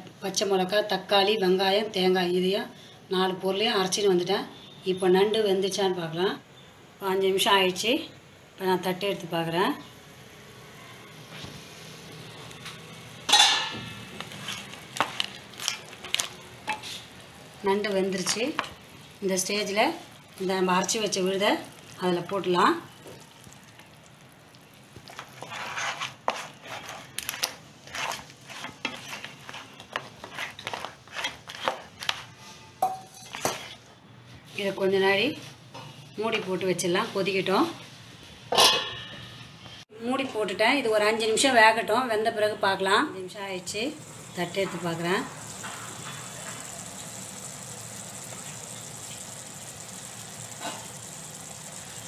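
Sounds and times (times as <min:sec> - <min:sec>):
spatula scraping and knocking in wok: 0:13.2 - 0:17.1, 0:25.0 - 0:32.4, 0:44.4 - 0:47.4
gravy simmering and bubbling: 0:22.8 - 0:32.3, 0:44.0 - 0:52.0.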